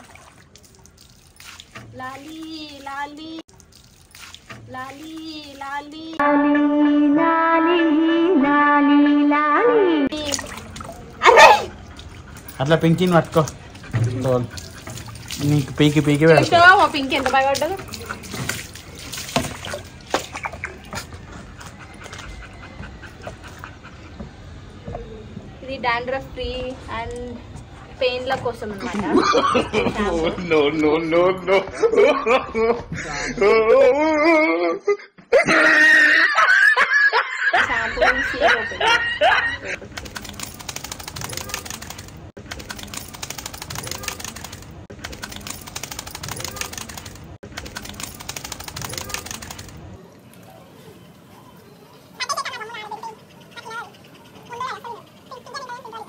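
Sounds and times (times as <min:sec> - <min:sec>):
water splashing onto concrete: 0:00.0 - 0:06.0, 0:10.1 - 0:11.2, 0:11.9 - 0:21.2, 0:39.9 - 0:49.8
water dripping: 0:00.0 - 0:06.2, 0:10.1 - 0:21.4
rapid clicking loop: 0:39.9 - 0:49.8.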